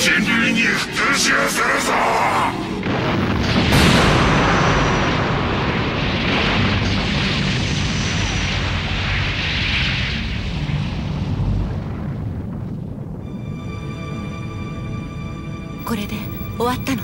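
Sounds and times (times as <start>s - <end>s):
explosion rumble with debris: 2.6s - 13.9s.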